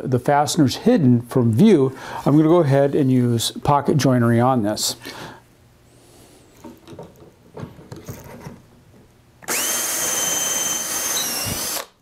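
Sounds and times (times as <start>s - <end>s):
cordless drill whining: 9.4s - 12.0s.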